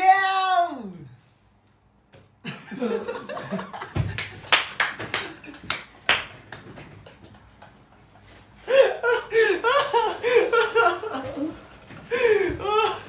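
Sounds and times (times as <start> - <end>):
sharp hand claps: 4.1 - 6.8.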